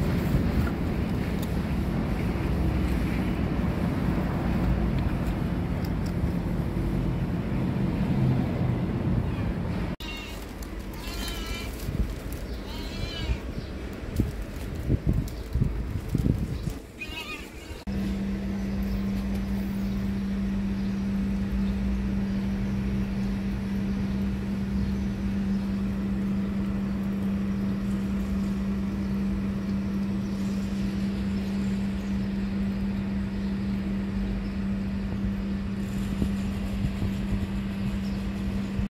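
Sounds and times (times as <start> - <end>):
low machine hum: 0.0 - 38.9
low rumble: 13.5 - 16.8.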